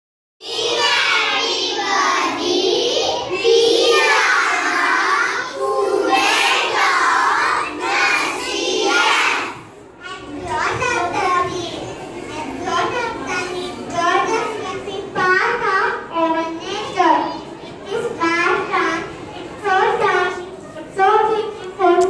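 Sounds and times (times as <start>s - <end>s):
children chanting in unison: 0.4s - 9.8s.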